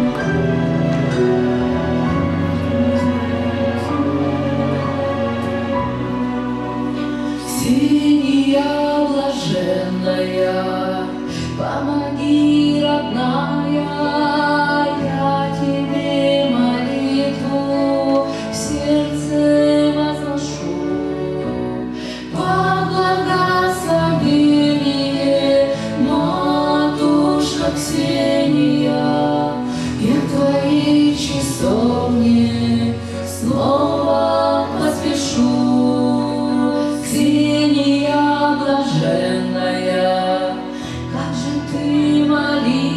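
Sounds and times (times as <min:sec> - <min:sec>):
sustained instrumental accompaniment: 0:00.0 - 0:18.4
woman singing into microphone: 0:07.4 - 0:42.9.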